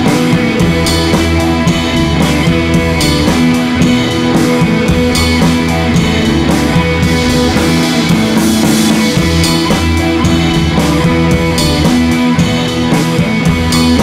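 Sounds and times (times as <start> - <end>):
rock music with guitar and drums: 0.0 - 14.0.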